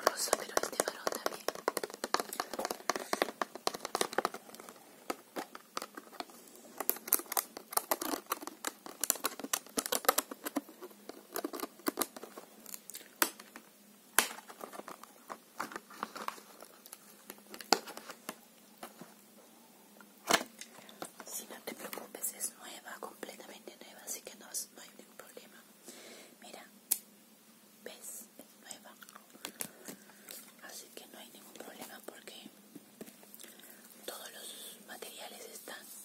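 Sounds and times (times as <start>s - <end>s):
plastic packaging crinkling: 0.0s - 13.6s, 14.2s - 19.0s.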